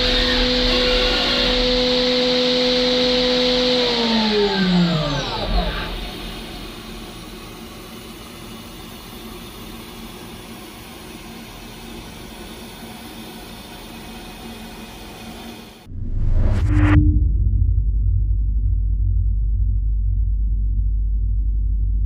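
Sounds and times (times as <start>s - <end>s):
spindle whining: 0.0s - 6.9s.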